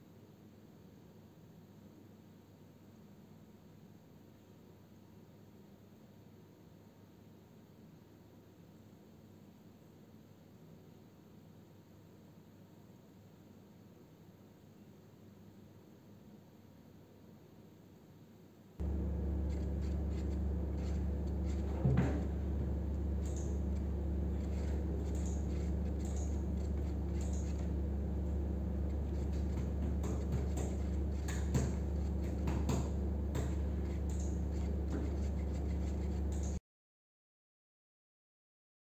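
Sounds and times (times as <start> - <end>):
loud low hum: 18.8 - 36.6
wooden stick stirring in paper cup: 18.8 - 36.6.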